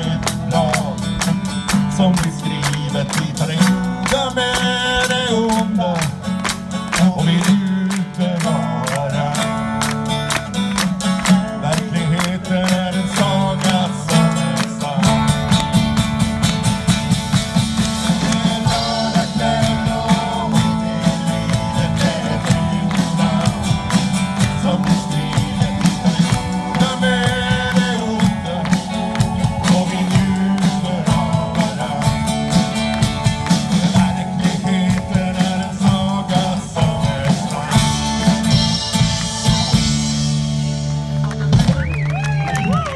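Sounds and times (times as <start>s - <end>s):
drum kit beat: 0.0s - 42.9s
rock band playing: 0.0s - 42.9s.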